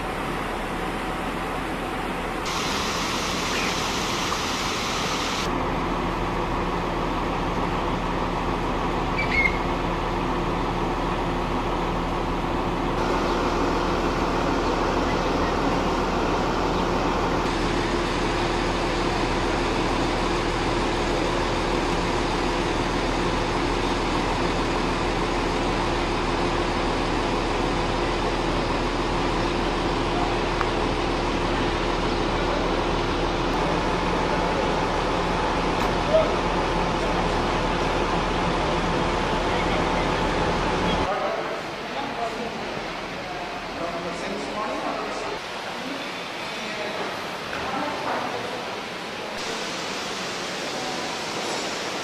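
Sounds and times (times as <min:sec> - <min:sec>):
outdoor background hum: 0:00.0 - 0:41.2.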